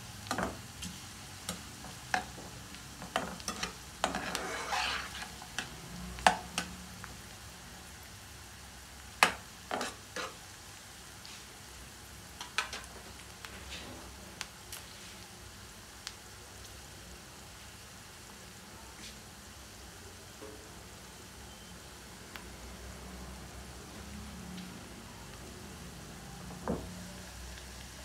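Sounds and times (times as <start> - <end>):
potatoes sizzling in a pan: 0.0 - 24.1, 24.7 - 28.0
spatula scraping a pan: 3.0 - 5.7, 9.7 - 10.4.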